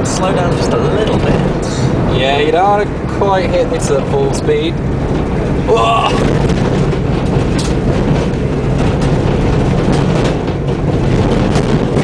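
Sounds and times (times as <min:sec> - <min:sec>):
van engine and tyres rumbling: 0:00.0 - 0:12.0
vehicle body knocks and rattles: 0:04.7 - 0:12.0.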